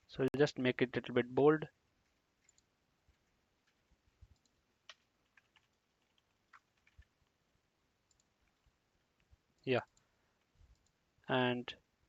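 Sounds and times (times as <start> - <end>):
faint keyboard typing: 2.0 - 7.4, 8.0 - 11.0.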